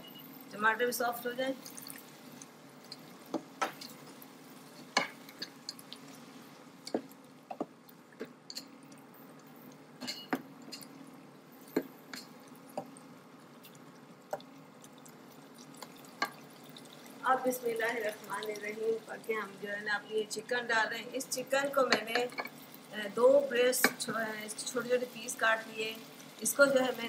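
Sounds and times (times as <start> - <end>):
masala bubbling in a pan: 0.0 - 27.0
sharp taps and pops: 6.8 - 8.6, 14.3 - 14.5.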